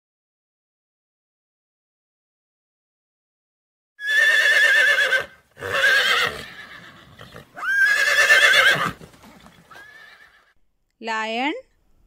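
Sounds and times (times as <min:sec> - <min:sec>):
horse whinnying: 0:04.0 - 0:10.6.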